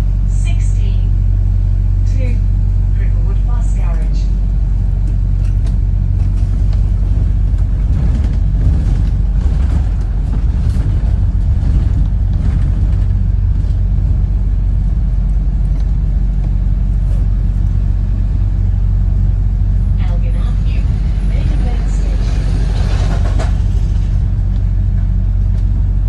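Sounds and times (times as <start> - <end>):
bus engine and road rumble: 0.0 - 26.0
faint rattles: 5.0 - 17.9.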